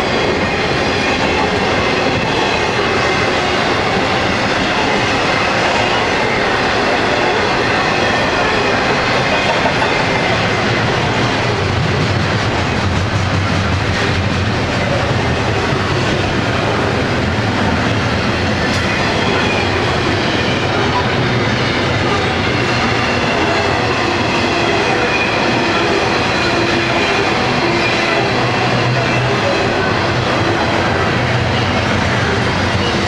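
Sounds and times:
freight train wheels rumbling on rails: 0.0s - 33.0s.

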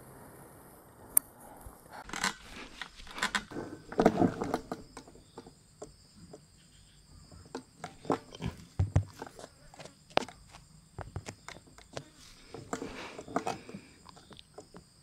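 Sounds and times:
rustling and scraping handling noise: 1.9s - 5.6s, 7.4s - 14.9s
sharp clicks: 2.0s - 5.5s.

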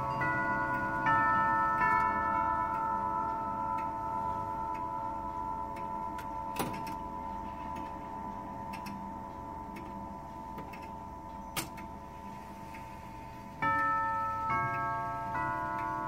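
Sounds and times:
tubular chime bells ringing: 0.0s - 16.0s
clock clicks: 4.7s - 12.0s.

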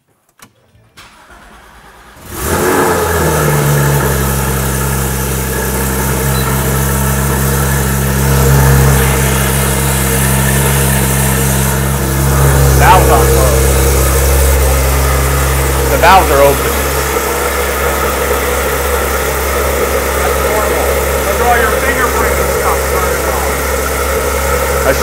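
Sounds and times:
car engine starting and idling: 0.4s - 25.0s.

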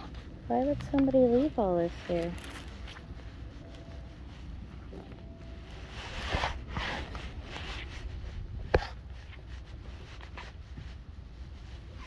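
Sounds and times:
wind rumble on microphone: 6.1s - 12.0s.

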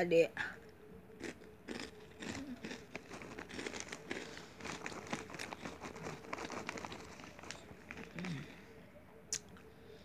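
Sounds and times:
crunchy snack being eaten: 1.2s - 8.6s.

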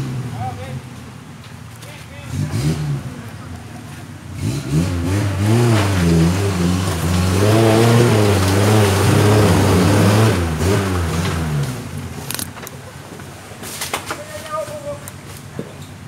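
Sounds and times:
off-road engine revving hard: 0.0s - 0.8s, 2.2s - 3.5s, 4.2s - 12.5s.

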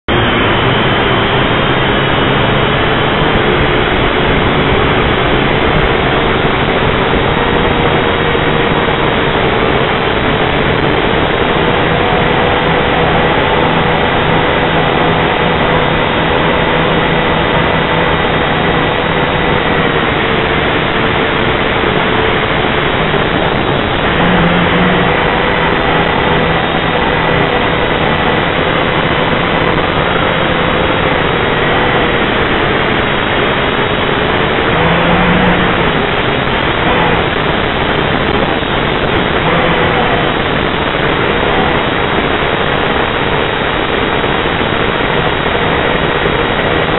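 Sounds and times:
drone motors whining: 0.1s - 46.9s.

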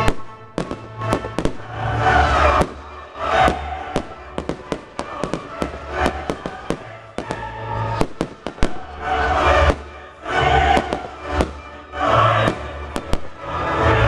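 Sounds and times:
fireworks bangs and crackles: 0.0s - 13.7s
music playing: 0.0s - 14.0s.

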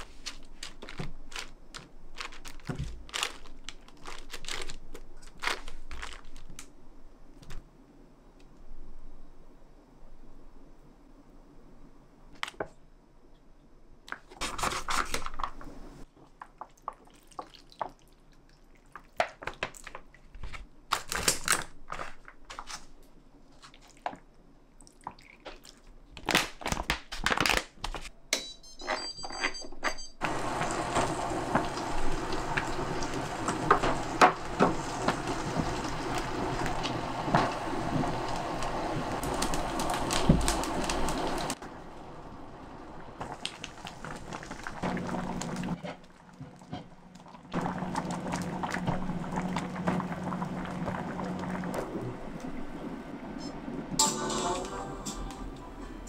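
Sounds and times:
sauce packet crinkling: 0.0s - 6.7s
pot boiling with bubbling pops: 15.4s - 20.1s, 30.2s - 42.0s, 42.8s - 52.9s.

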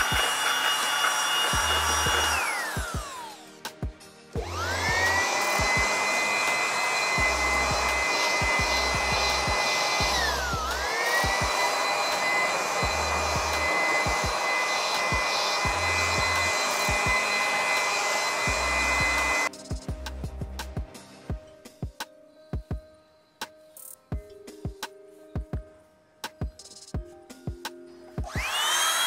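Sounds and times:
electric air blower whining: 0.0s - 3.6s, 4.4s - 19.5s, 28.2s - 29.0s.

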